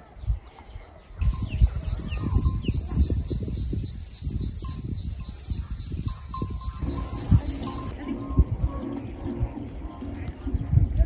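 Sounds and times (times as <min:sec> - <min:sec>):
chicks cheeping: 0:01.2 - 0:07.9.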